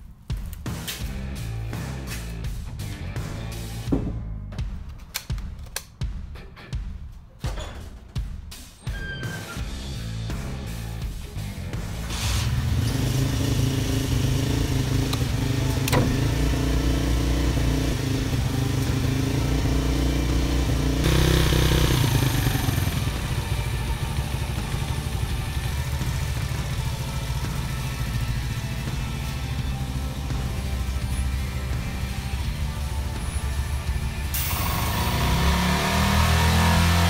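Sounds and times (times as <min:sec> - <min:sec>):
motorcycle engine revving: 0:11.6 - 0:37.0.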